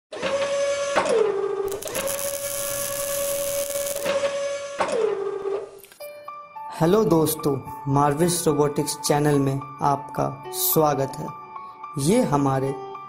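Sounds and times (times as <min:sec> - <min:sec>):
synthesized buzzing tone: 0:01.7 - 0:04.7.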